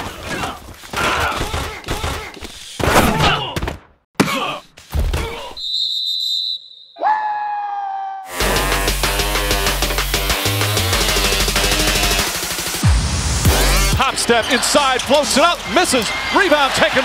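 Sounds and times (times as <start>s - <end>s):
players shouting and grunting: 0.0s - 5.6s, 13.6s - 17.0s
referee's whistle: 5.5s - 7.5s
long held shout: 7.0s - 8.5s.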